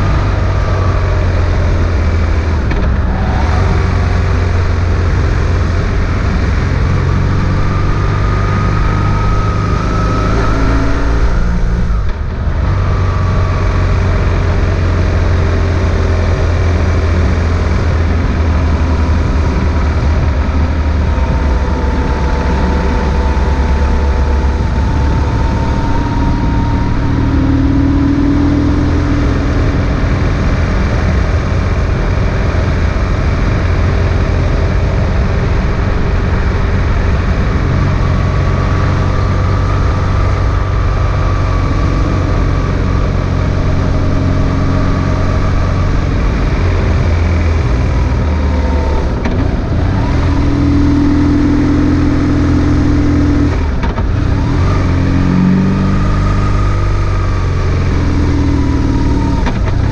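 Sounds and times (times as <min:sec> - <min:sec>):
motorcycle engine at speed: 0:00.0 - 0:59.9
wind and road noise: 0:00.0 - 0:59.9.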